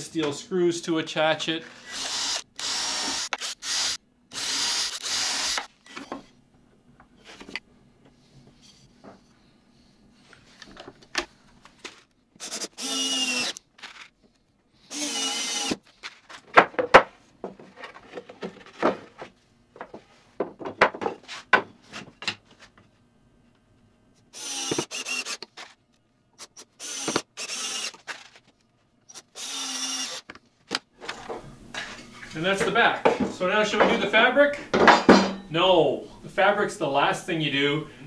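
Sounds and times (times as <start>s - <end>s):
cordless drill driving screws: 1.8s - 6.0s, 12.4s - 13.6s, 14.9s - 15.8s, 24.3s - 25.6s, 26.4s - 28.1s, 29.1s - 30.3s.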